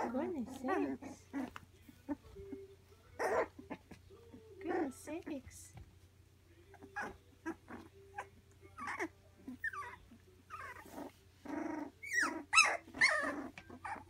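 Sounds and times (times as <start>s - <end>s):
puppies yelping: 0.0s - 2.3s, 3.2s - 4.0s, 6.8s - 14.0s
puppies growling and whining: 0.0s - 5.0s, 6.6s - 14.0s.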